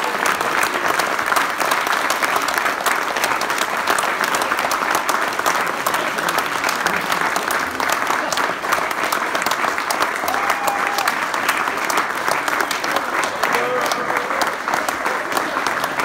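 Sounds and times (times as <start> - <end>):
crowd applauding: 0.0 - 16.0.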